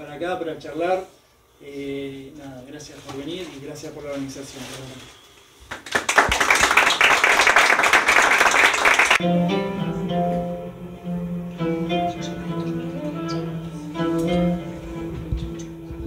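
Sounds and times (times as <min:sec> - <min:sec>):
audience applauding: 0:05.7 - 0:09.2
plucked-string music: 0:09.2 - 0:16.0.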